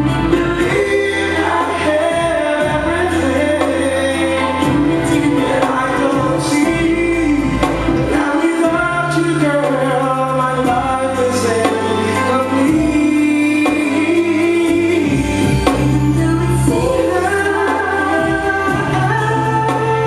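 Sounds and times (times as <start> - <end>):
amplified backing music: 0.0 - 20.0
man singing into microphone: 0.0 - 20.0.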